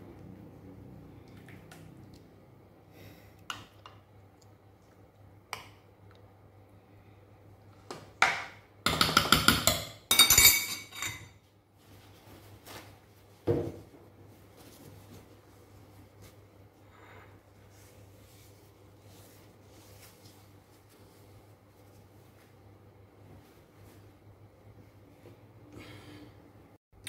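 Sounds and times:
metal spoon clinking on pot: 8.9s - 11.3s.

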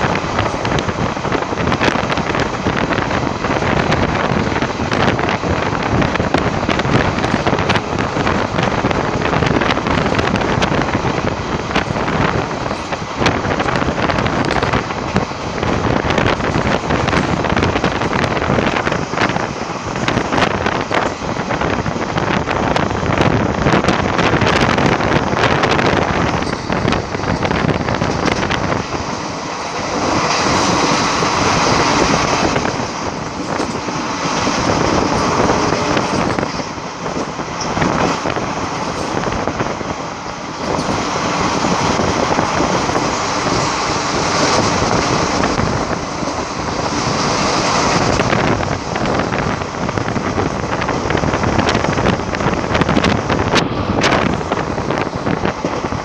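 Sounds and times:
train wheels rattling over rails: 0.0s - 56.0s
wind rushing over microphone: 0.0s - 56.0s.

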